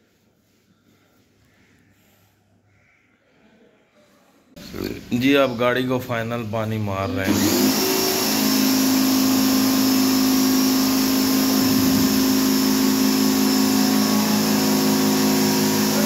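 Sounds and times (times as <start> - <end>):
pressure washer motor humming: 6.1 - 16.0
water jet hissing: 7.4 - 16.0.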